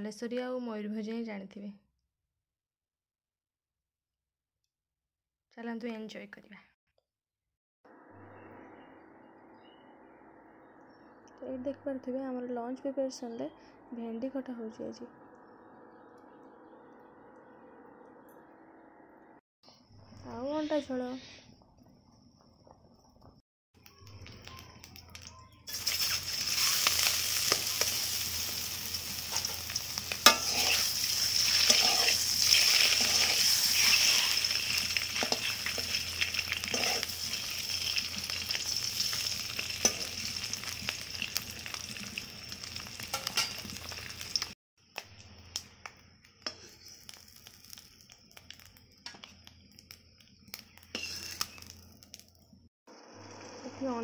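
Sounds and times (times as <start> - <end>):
eggs sizzling in hot oil: 22.3 - 54.0.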